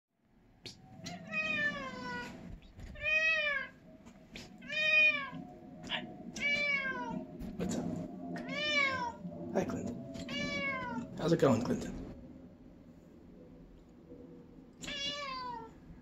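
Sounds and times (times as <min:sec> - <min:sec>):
cat meowing: 0:01.0 - 0:03.8, 0:04.6 - 0:07.2, 0:08.4 - 0:09.2, 0:10.2 - 0:11.2, 0:14.8 - 0:15.8.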